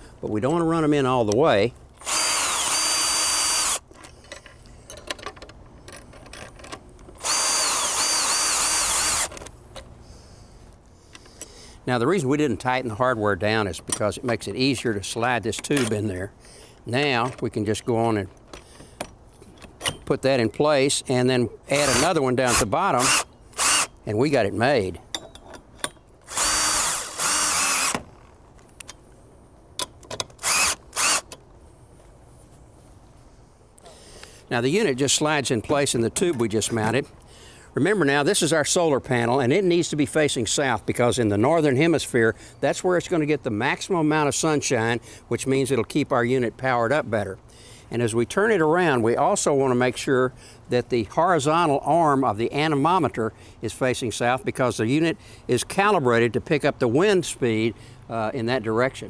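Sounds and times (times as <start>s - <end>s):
cordless drill driving screw: 2.0s - 3.8s, 7.2s - 9.5s, 21.8s - 23.9s, 26.2s - 28.0s, 30.4s - 31.3s.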